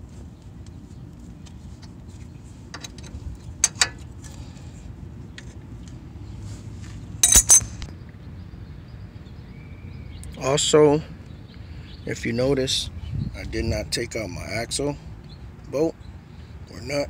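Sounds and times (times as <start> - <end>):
wrench clinking on metal: 7.2 - 7.9.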